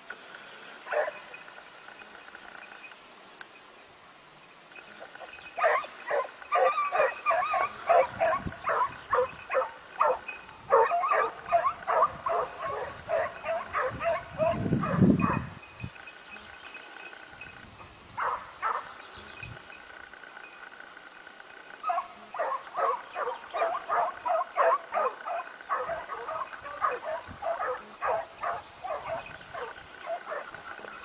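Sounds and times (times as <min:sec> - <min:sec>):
hounds barking and baying: 0:00.8 - 0:01.4, 0:05.0 - 0:15.5, 0:18.2 - 0:19.0, 0:21.8 - 0:31.0.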